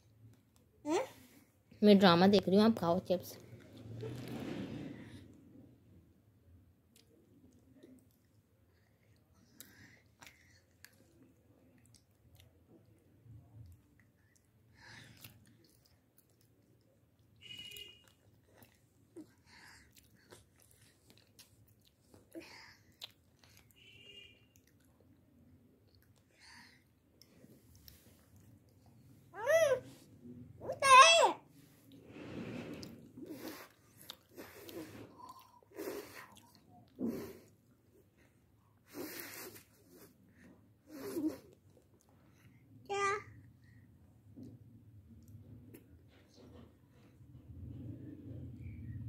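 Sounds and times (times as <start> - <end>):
child chewing chips: 13.6 - 29.0, 32.7 - 38.2.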